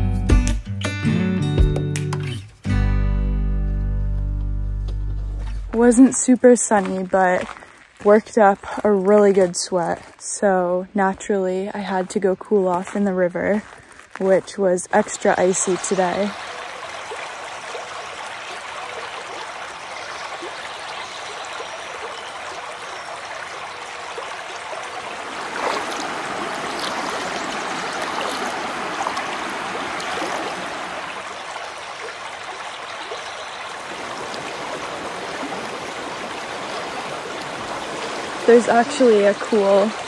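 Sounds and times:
river rushing over stones: 0:13.6 - 0:40.0.

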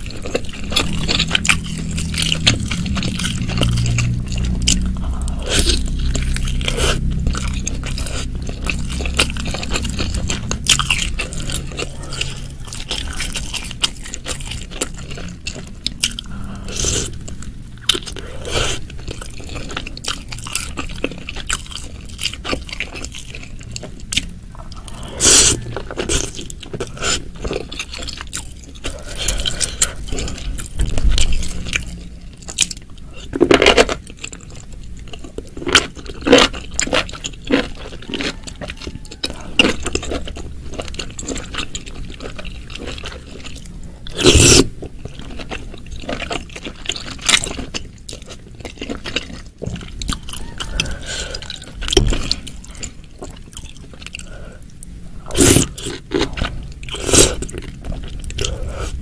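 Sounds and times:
wet chewing and slurping: 0:00.0 - 0:59.0.

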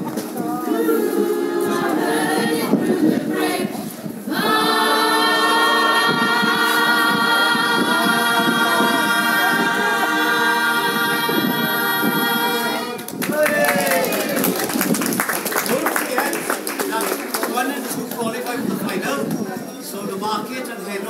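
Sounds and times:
choir singing a cappella: 0:00.3 - 0:13.0.

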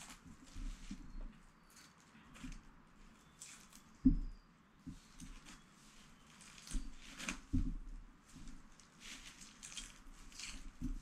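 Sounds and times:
soft handling knocks: 0:03.9 - 0:09.4.

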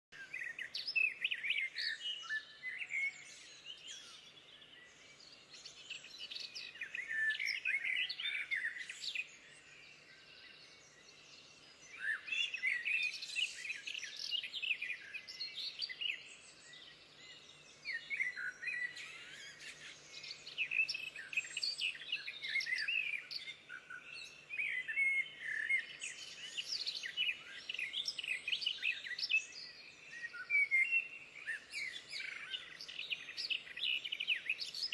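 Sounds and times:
small birds singing and chirping: 0:00.1 - 0:34.9.

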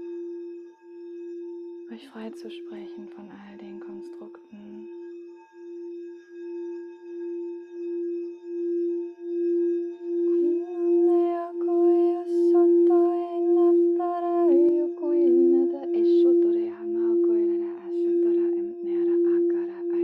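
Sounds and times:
crystal singing bowl tone: 0:00.0 - 0:20.0
woman's wordless singing: 0:01.9 - 0:05.0, 0:10.3 - 0:20.0.

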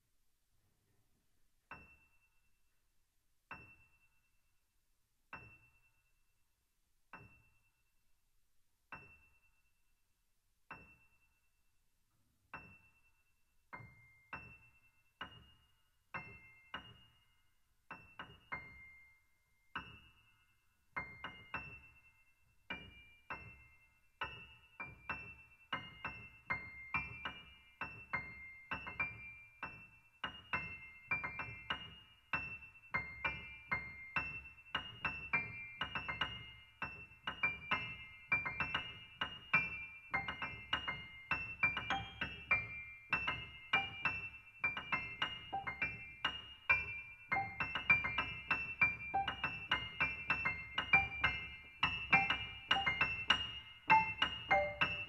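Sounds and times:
piano single high notes: 0:44.9 - 0:55.0.

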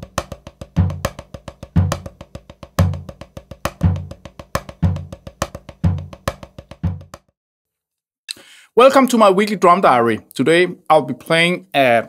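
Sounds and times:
bass drum accent: 0:00.0 - 0:07.3
drum kit played with sticks: 0:00.0 - 0:07.3.

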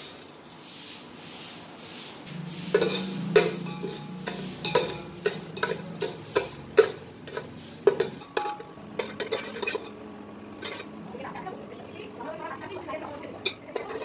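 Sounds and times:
metal spoon scraping a pot: 0:02.3 - 0:10.0, 0:10.6 - 0:11.0, 0:13.4 - 0:14.0.

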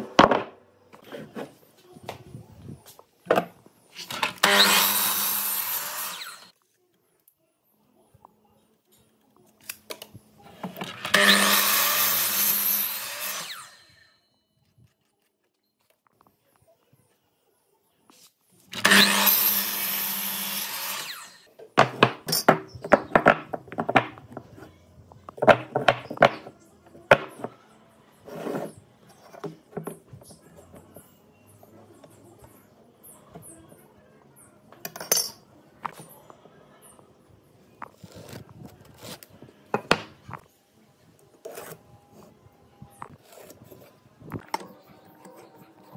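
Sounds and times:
mitre saw cutting wood: 0:04.4 - 0:06.5, 0:10.9 - 0:14.0, 0:18.8 - 0:21.5
wooden blocks knocking: 0:21.8 - 0:24.5, 0:25.3 - 0:26.5.

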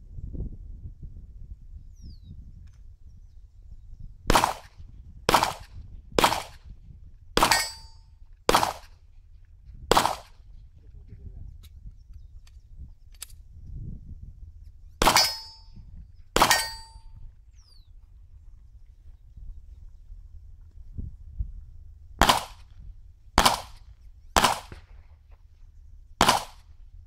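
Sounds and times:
pistol shots: 0:04.3 - 0:06.6, 0:07.4 - 0:08.9, 0:09.9 - 0:10.4, 0:15.0 - 0:15.6, 0:16.4 - 0:17.0, 0:22.2 - 0:22.7, 0:23.4 - 0:23.8, 0:24.4 - 0:25.0, 0:26.2 - 0:26.7
bullet ringing on steel plate: 0:07.4 - 0:08.1, 0:15.0 - 0:15.8, 0:16.4 - 0:17.2.

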